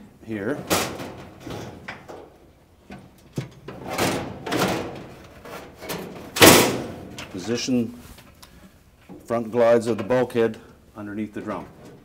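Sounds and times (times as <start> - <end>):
metal panel scraping and knocking: 0.6 - 2.3.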